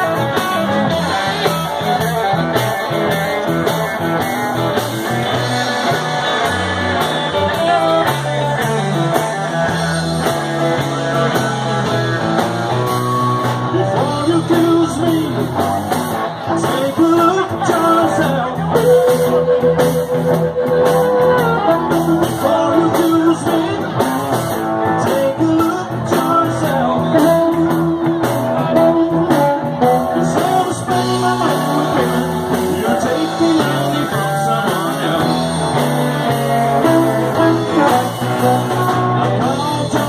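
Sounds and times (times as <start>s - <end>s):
blues band playing: 0.0s - 40.0s
lead guitar long notes: 0.0s - 40.0s.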